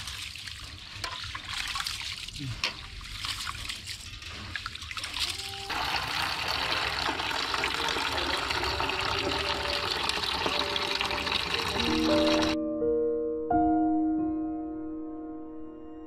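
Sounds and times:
hands swishing rice in water: 0.0s - 5.6s
water pouring into plastic bucket: 0.0s - 12.6s.

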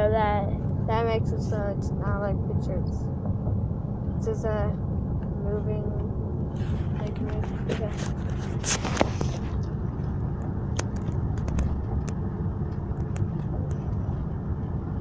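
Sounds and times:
car driving rumble inside cabin: 0.0s - 15.0s
device rubbing against clothing: 6.6s - 9.6s.

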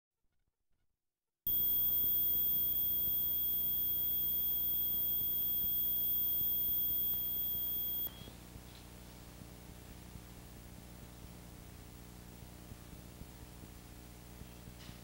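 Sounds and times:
high electronic tone: 1.5s - 8.1s
high-pitched whine: 1.5s - 8.1s
tape hiss: 1.5s - 8.1s.

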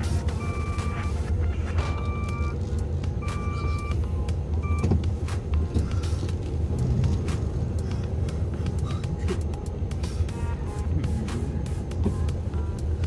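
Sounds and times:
truck engine running: 0.0s - 13.0s
electronic beep: 0.3s - 2.6s, 3.2s - 4.0s, 4.6s - 4.9s.

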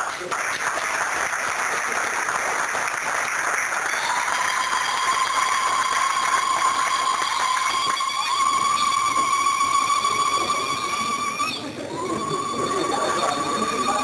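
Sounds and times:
audience applauding: 0.0s - 14.0s
high long-held tone: 4.1s - 14.0s.

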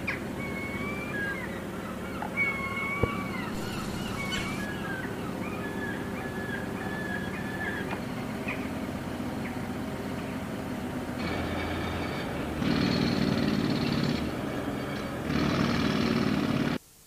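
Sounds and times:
high chirping bird calls: 0.0s - 8.7s
loud engine hum: 0.0s - 16.8s
low rumble of traffic: 0.0s - 16.8s.

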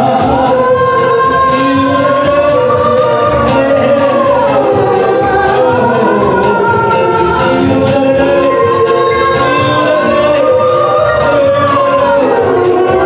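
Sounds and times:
instrumental accompaniment with beat: 0.0s - 13.0s
man and woman singing duet: 0.0s - 13.0s.

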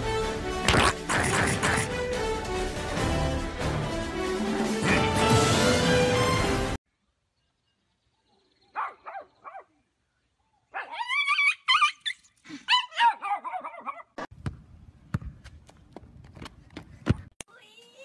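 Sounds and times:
small dog yelping and whining: 10.8s - 14.0s.

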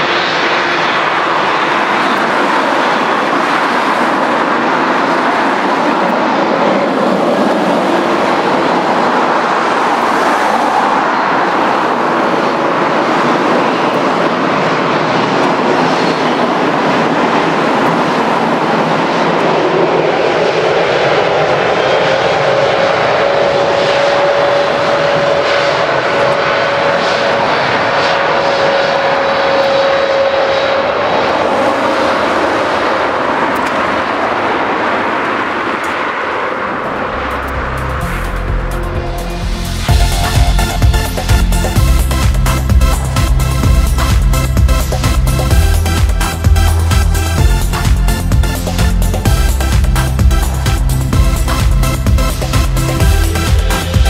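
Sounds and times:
jet engines roaring: 0.0s - 54.0s
engines spooling up tone: 36.4s - 54.0s.

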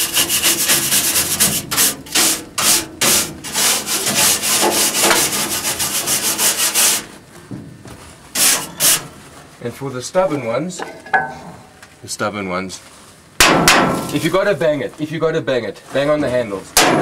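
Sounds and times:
wire brush scrubbing metal screen: 0.0s - 7.1s, 8.4s - 9.1s.

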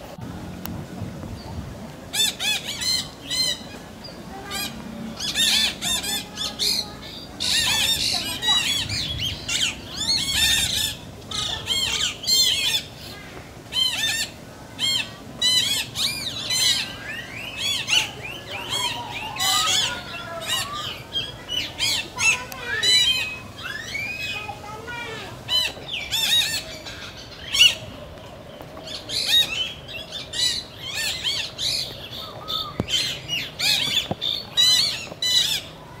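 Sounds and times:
high-pitched squawking animal calls: 13.7s - 27.8s.

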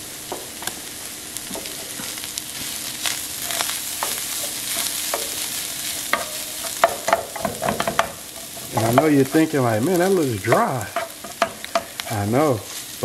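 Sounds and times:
meat sizzling in a pan: 0.0s - 13.0s
utensil scraping and knocking pan: 3.4s - 9.5s, 10.4s - 12.0s.

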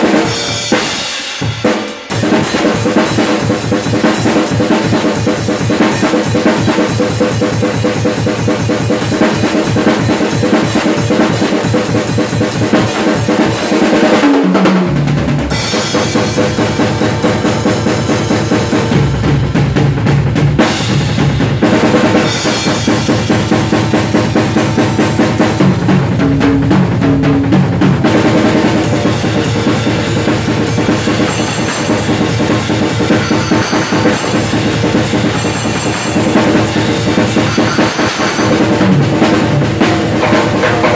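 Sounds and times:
acoustic drum kit playing: 0.0s - 40.9s
tom fill: 14.4s - 40.9s.

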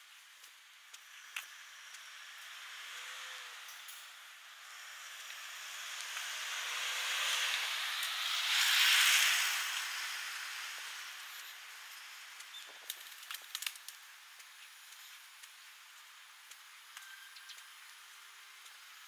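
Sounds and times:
vehicle passing by: 1.7s - 12.2s.

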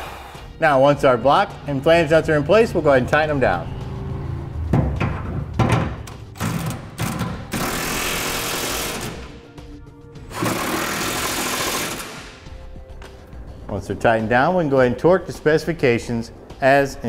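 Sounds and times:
impact wrench hammering: 4.7s - 9.3s, 10.3s - 12.5s.

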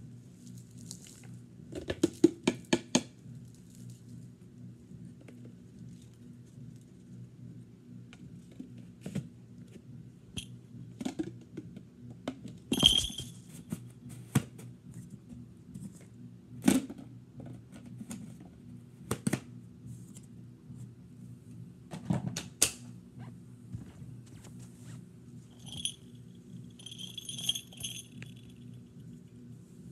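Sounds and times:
faint low hum: 3.2s - 29.9s
ringing clink: 12.7s - 13.3s, 25.6s - 26.1s, 26.8s - 28.6s.

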